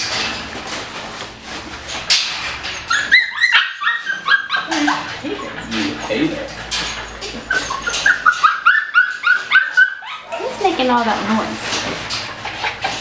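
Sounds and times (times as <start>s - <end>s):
puppy yipping and whining: 2.7s - 6.2s, 6.9s - 10.5s.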